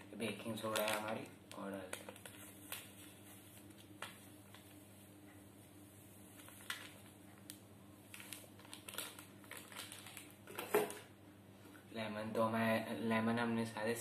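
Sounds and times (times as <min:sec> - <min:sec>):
paper packet crinkling: 0:00.2 - 0:04.8, 0:06.3 - 0:11.0.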